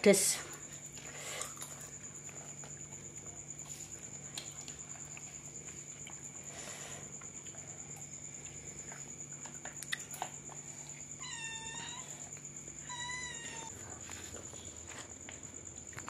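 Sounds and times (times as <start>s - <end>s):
cat meowing: 12.8s - 13.7s.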